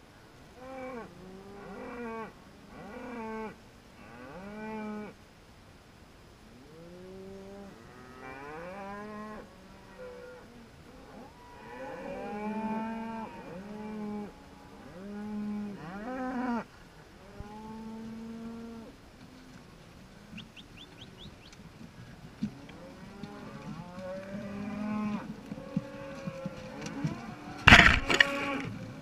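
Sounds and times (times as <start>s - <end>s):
cows mooing: 22.4s - 28.8s.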